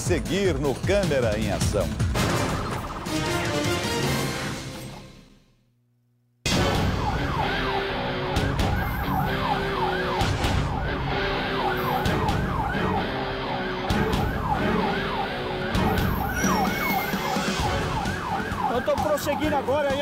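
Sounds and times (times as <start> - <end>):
police siren yelping: 6.6 - 20.0.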